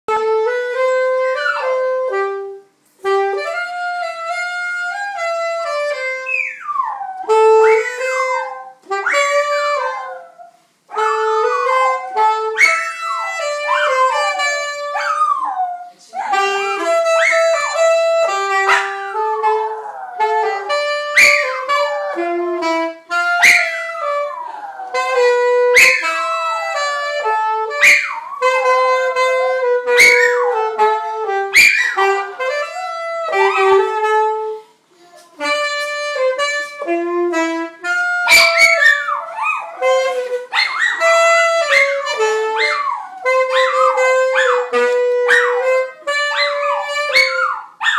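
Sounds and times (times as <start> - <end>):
saxophone playing held notes: 0.1 - 47.8
small dog howling: 6.3 - 16.5, 23.4 - 26.9, 38.3 - 45.6, 46.2 - 47.9.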